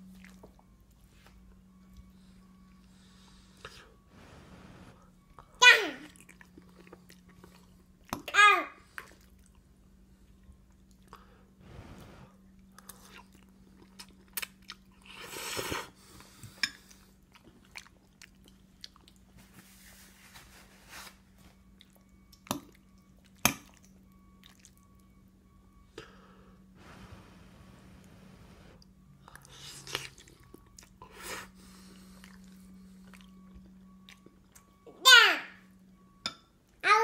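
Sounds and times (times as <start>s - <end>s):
steady low hum: 0.0s - 8.2s, 8.8s - 35.0s
toddler chewing: 5.4s - 8.3s, 29.2s - 35.0s.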